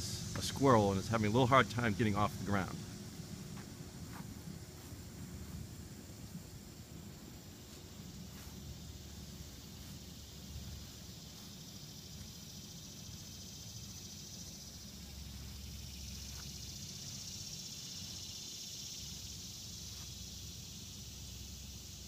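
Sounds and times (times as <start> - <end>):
faint low rumble: 0.0 - 17.0
insect chorus drone: 0.0 - 22.0.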